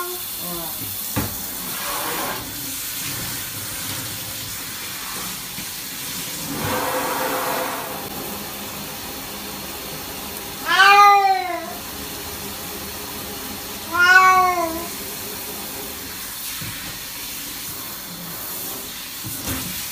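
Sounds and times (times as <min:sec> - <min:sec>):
shower water running: 0:00.0 - 0:19.9
cat meowing: 0:10.6 - 0:11.8, 0:13.8 - 0:15.0.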